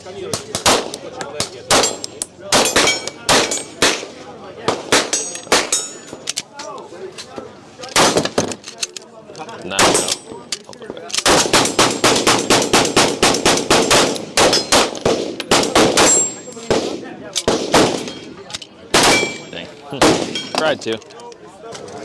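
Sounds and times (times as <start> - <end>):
pistol gunshots: 1.7 - 4.1, 11.2 - 18.2, 18.9 - 20.5.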